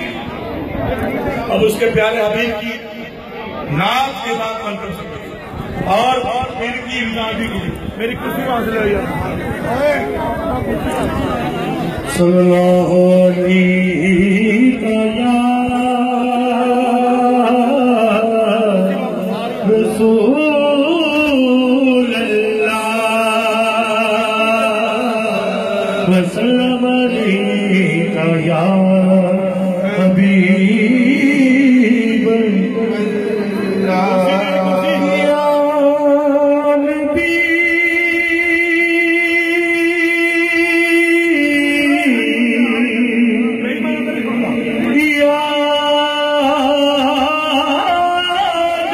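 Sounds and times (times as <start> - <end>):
man singing unaccompanied: 12.1 - 48.9.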